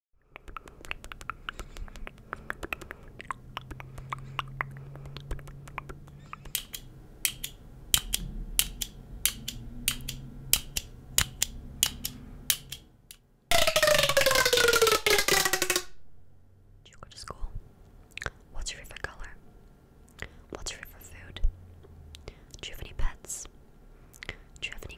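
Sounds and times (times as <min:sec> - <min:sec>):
pop tube crackling rasp: 0:00.3 - 0:06.8, 0:13.5 - 0:16.0
stapler clicking: 0:06.6 - 0:12.8.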